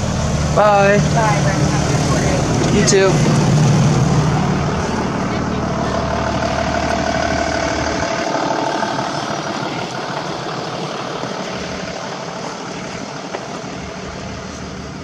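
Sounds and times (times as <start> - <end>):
motor vehicle rumbling past: 0.0 - 15.0.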